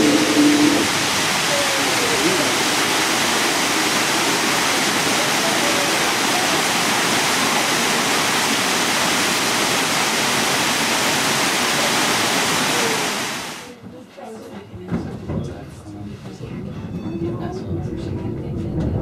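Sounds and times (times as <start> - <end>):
waterfall rushing: 0.0 - 13.7.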